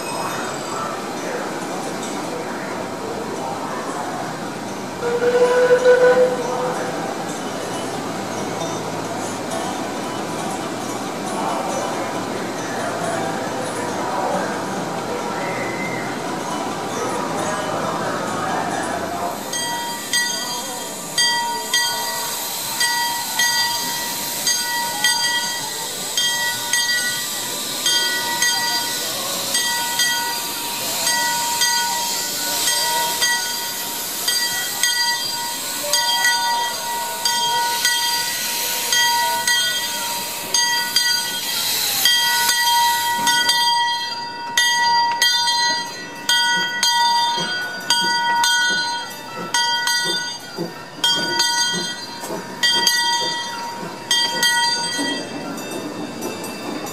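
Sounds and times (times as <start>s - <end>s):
railroad bell ringing: 0.0s - 56.9s
steam venting hiss: 17.9s - 43.8s.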